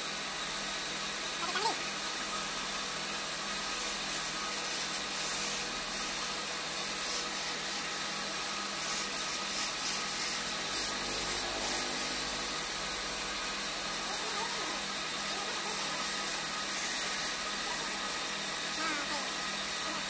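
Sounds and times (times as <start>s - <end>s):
wood lathe humming: 6.6s - 20.0s
chisel scraping spinning wood: 8.7s - 14.0s.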